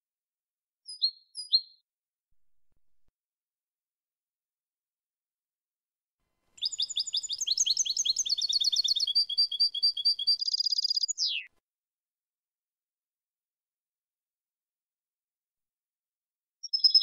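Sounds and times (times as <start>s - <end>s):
goldfinch singing: 6.6s - 11.5s.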